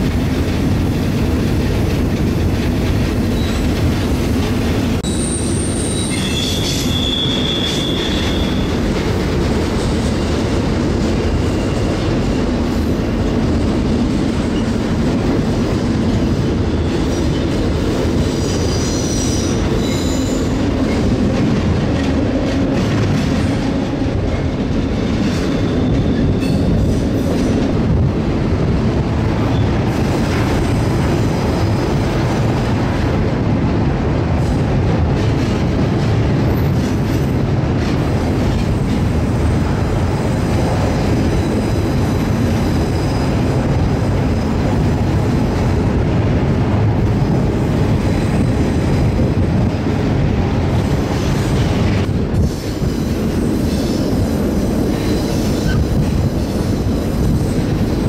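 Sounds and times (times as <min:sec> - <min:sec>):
train wheels on rails: 0:00.0 - 0:58.0
high wheel squeal: 0:05.0 - 0:08.8.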